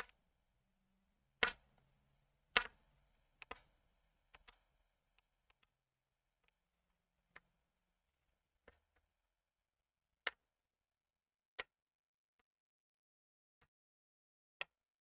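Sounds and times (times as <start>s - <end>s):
knitting needles clicking: 1.4s - 1.8s, 3.4s - 5.7s.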